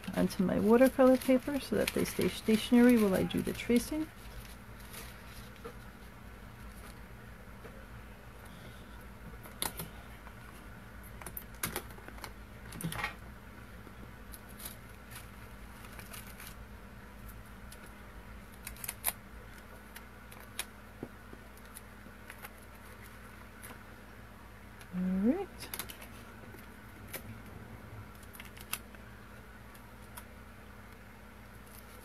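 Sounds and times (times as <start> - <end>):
paper and tape rustling: 0.0 - 7.0, 14.3 - 16.6, 31.5 - 32.0
faint steady low hum: 0.0 - 32.0.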